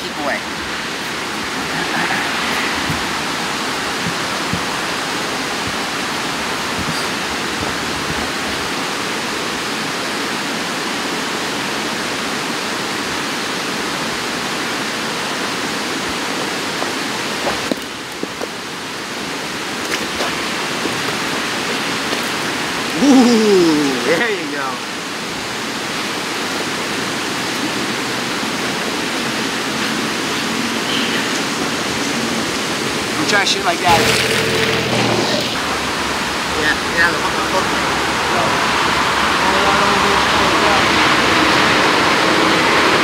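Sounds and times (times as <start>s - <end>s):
steady rushing noise: 0.0s - 43.0s
short falling vocal sounds: 22.9s - 24.3s.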